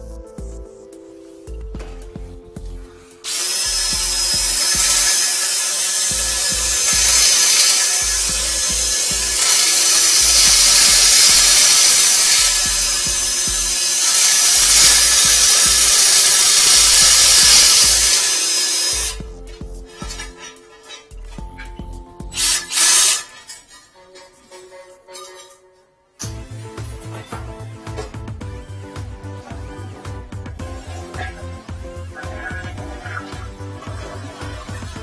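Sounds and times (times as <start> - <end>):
cordless drill spinning drain cable: 3.3 - 19.3, 22.3 - 23.8, 30.5 - 35.0.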